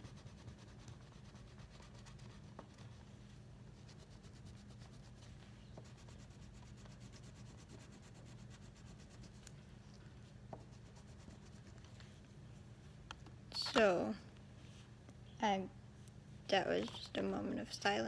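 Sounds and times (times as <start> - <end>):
coloring strokes scratching: 0.0 - 3.1, 3.8 - 9.5, 10.6 - 11.9
low room hum: 0.0 - 18.0.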